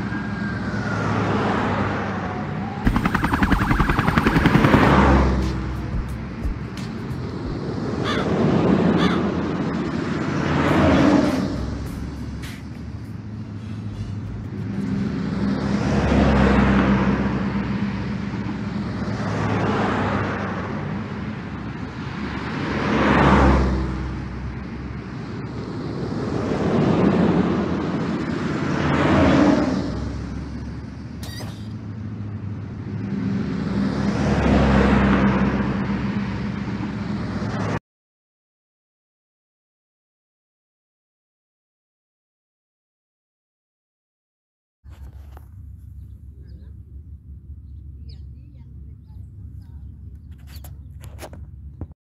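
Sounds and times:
cars passing: 0.0 - 31.2, 31.8 - 37.8.

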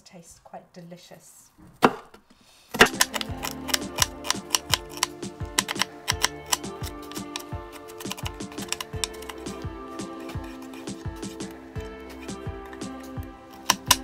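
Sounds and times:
background music: 2.7 - 14.0
knife chopping on board: 2.8 - 14.0.

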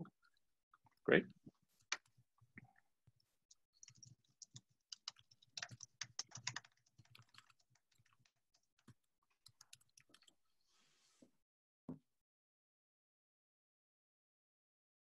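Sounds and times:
typing on a keyboard: 3.5 - 10.4.

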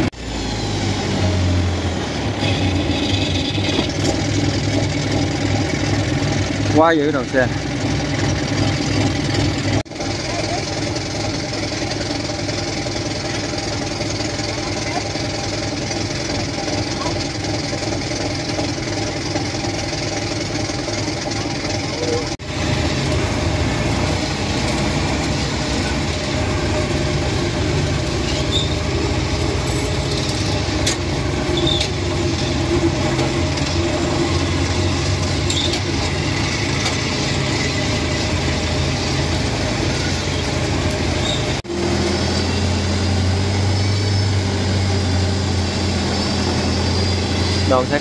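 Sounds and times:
tracked carrier engine running: 0.0 - 48.0.

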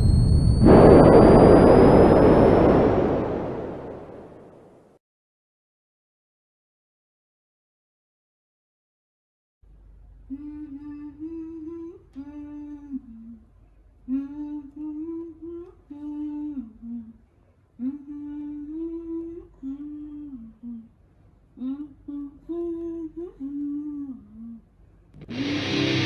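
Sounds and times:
woman humming a lullaby-like tune: 10.3 - 13.4, 14.1 - 17.2, 17.8 - 20.9, 21.6 - 24.6.

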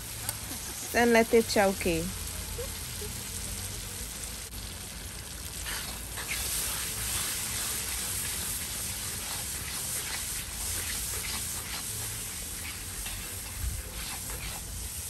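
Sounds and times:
paste sizzling in hot oil: 0.0 - 15.0
spoon stirring: 6.2 - 15.0.

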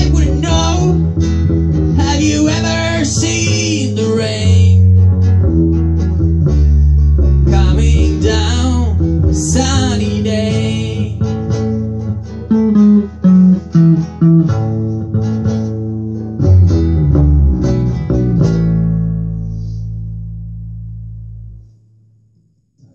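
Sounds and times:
acoustic guitar strumming: 0.0 - 22.9
bass guitar line: 0.0 - 22.9.

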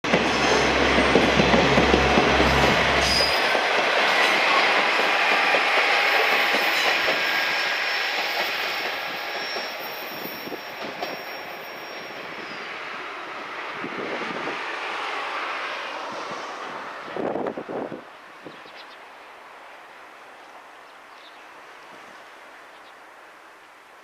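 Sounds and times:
train wheels on rails: 0.0 - 18.0
diesel railcar engine rumble: 0.0 - 20.3.

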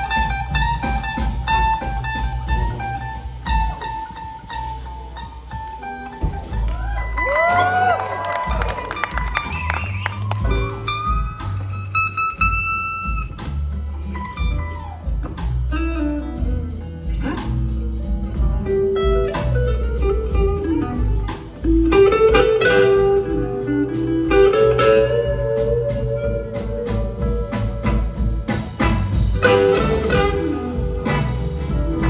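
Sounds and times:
bass: 0.0 - 32.0
drum kit: 0.0 - 32.0
electric guitar lead line: 14.0 - 32.0.

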